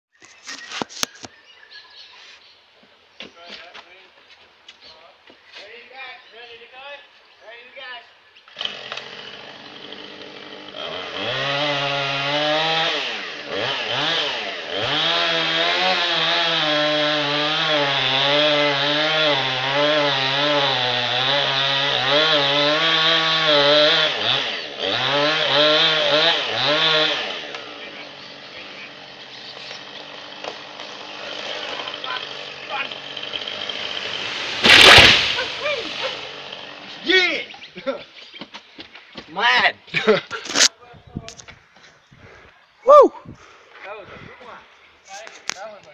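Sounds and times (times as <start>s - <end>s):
chainsaw cutting through trunk: 8.5s - 37.4s.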